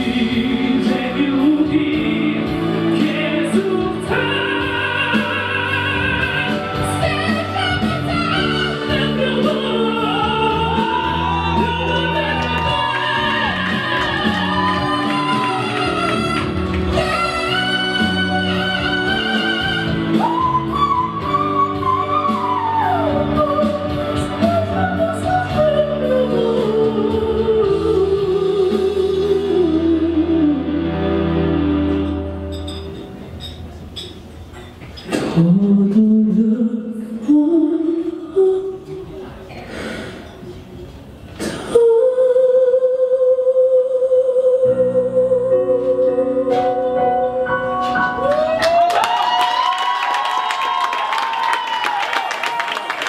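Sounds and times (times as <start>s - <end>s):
man singing into microphone: 0.0s - 30.8s, 35.2s - 39.1s
instrumental accompaniment: 0.0s - 34.9s.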